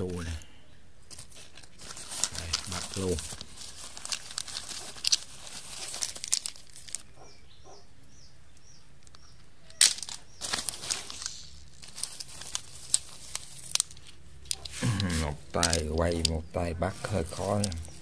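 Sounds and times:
dry leaves crackling and rustling: 1.1s - 7.1s, 9.7s - 16.3s, 16.9s - 18.0s.

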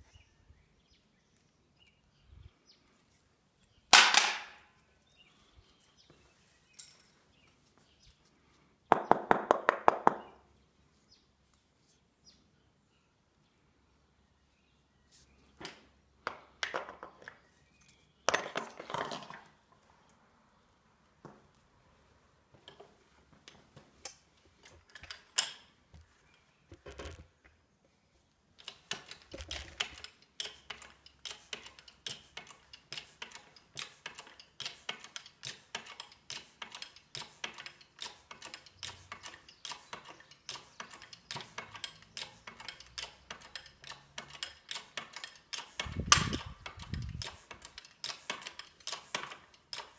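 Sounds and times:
jack handle metallic clicks: 23.5s - 25.7s, 28.6s - 49.9s.

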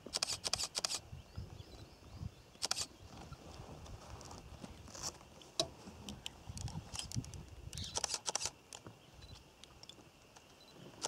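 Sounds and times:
camera shutter clicks: 0.1s - 1.0s, 2.6s - 2.9s, 7.8s - 8.6s.

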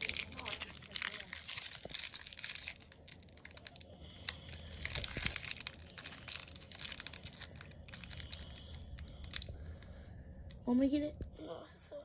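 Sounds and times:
foil wrapper crinkling and tearing: 0.0s - 9.5s.

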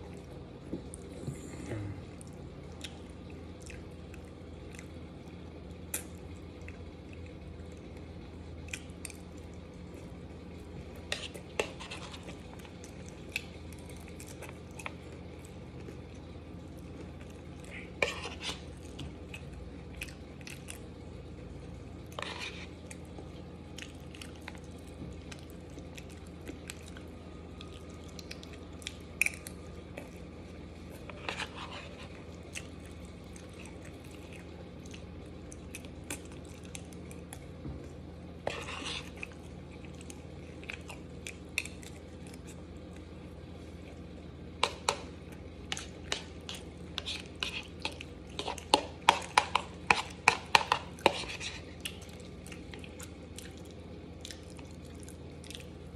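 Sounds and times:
chewing: 0.0s - 21.0s, 21.6s - 55.9s
steady low hum: 0.0s - 55.9s
spoon scraping a bowl: 11.1s - 12.4s, 18.0s - 18.7s, 22.2s - 22.7s, 31.1s - 32.1s, 38.4s - 39.2s, 45.7s - 51.7s.

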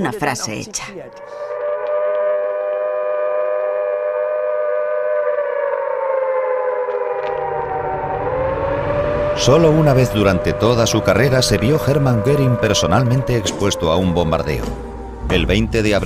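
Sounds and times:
air-raid siren wailing: 0.8s - 16.0s
low rumble: 7.3s - 16.0s.

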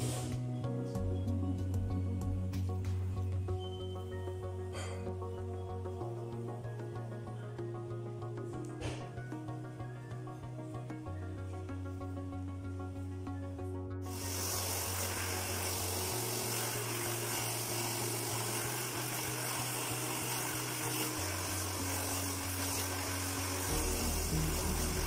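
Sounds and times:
background music with low notes: 0.0s - 25.0s
hair dryer blowing: 14.1s - 25.0s.

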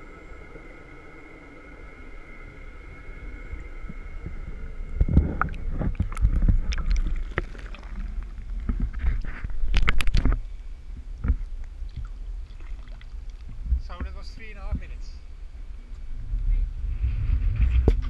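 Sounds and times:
underwater bubbling: 0.0s - 14.5s
faint steady hum: 0.0s - 18.0s
water sloshing and knocks: 5.0s - 10.4s, 11.0s - 14.1s.

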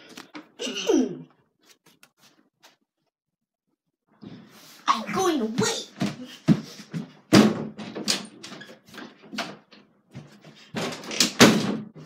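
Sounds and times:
door knocks and thumps: 7.3s - 12.0s.

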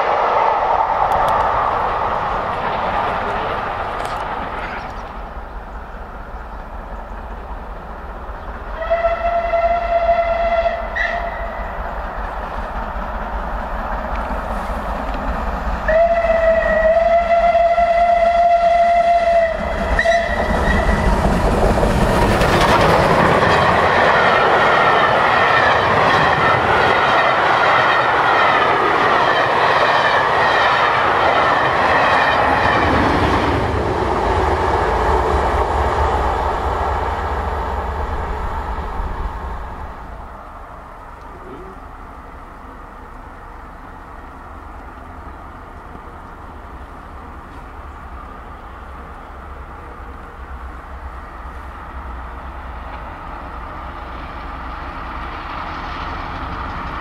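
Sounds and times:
train rushing past: 0.0s - 57.0s
wheels clattering over rail joints: 1.0s - 5.6s, 20.0s - 30.4s
steam locomotive whistle: 8.7s - 11.6s, 15.8s - 21.1s.

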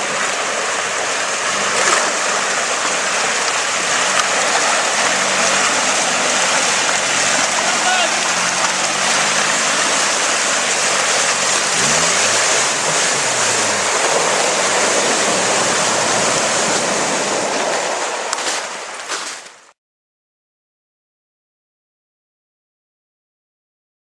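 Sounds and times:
faint car engine revving: 0.0s - 17.7s
loud steady rushing noise: 0.0s - 19.3s.

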